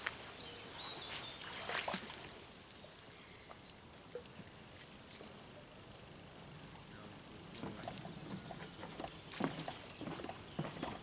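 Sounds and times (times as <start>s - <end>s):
small birds chirping: 2.3s - 11.0s.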